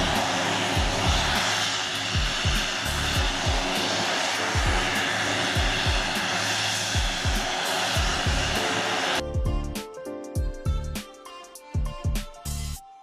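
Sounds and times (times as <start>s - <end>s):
background music with thumping beat: 0.0s - 1.5s, 2.1s - 8.6s, 9.2s - 12.9s
turboprop engines whining: 0.0s - 9.7s.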